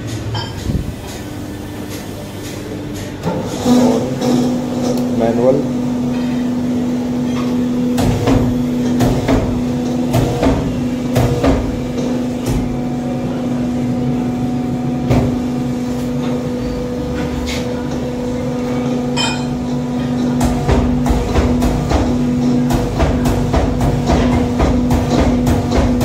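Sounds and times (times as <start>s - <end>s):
hydraulic pump humming: 0.0s - 26.0s
machine clanks and knocks: 2.9s - 5.3s, 7.2s - 12.8s, 19.0s - 26.0s.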